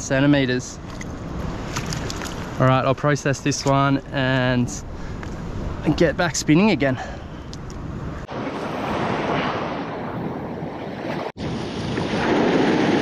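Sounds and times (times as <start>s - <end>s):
wind buffeting microphone: 7.4s - 13.0s.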